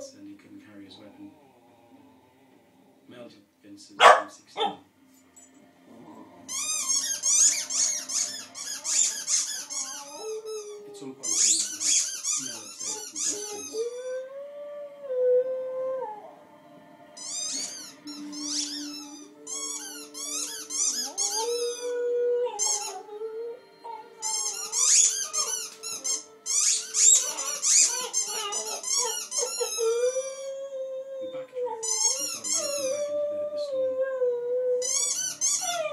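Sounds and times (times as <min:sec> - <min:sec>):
dog whining: 0:05.9 - 0:14.3, 0:17.2 - 0:35.9
high-pitched squeaks: 0:06.5 - 0:14.1, 0:17.2 - 0:23.1, 0:23.8 - 0:30.4, 0:31.8 - 0:33.1, 0:34.8 - 0:35.9.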